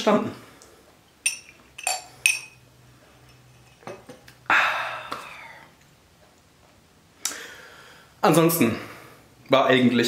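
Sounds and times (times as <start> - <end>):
breathy exhale: 4.5 - 5.7, 7.3 - 8.1.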